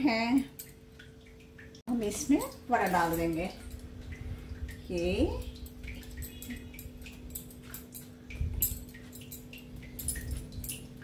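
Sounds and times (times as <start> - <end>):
faint steady hum: 0.0 - 11.0
bangles clinking: 2.3 - 4.2, 5.1 - 11.0.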